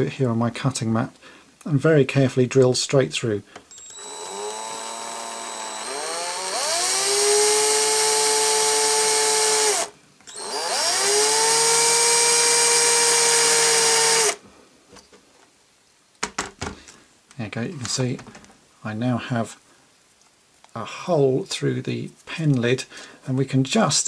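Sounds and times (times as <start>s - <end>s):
electric drill whining: 3.7s - 14.4s.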